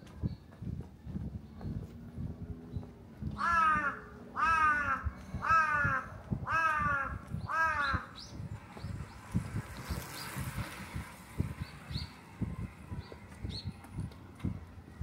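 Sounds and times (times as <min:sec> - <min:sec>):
crow cawing: 0:03.4 - 0:08.1.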